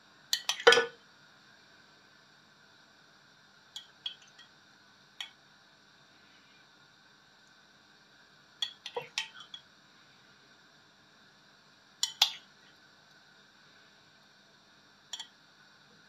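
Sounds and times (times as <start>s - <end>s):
metal spoon clinking against dish: 0.4s - 0.9s, 8.6s - 9.6s, 12.0s - 12.4s.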